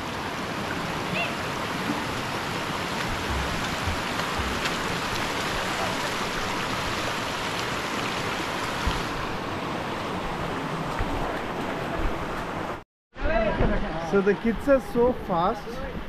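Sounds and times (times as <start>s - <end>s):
stream running over stones: 0.0s - 12.8s
dull low thumps: 3.1s - 5.8s.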